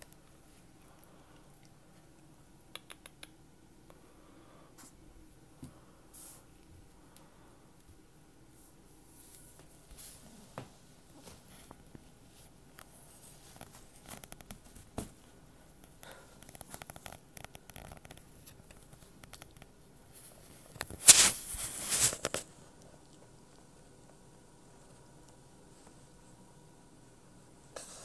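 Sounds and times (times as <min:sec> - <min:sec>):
soft clicks and rustles: 0:09.1 - 0:24.2.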